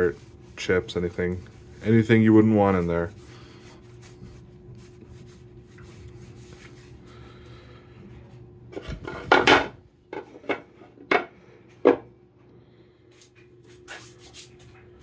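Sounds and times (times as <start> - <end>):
knocks of wood and metal: 9.3 - 11.3.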